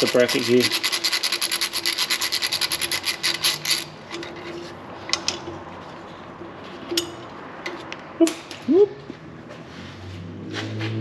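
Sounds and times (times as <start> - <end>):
hand tool scraping metal: 0.0 - 5.5.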